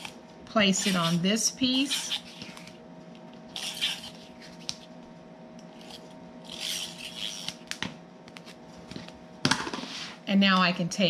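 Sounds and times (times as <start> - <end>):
hands rubbing cardstock: 0.8 - 1.2, 1.8 - 2.8, 3.6 - 4.8, 5.8 - 7.6.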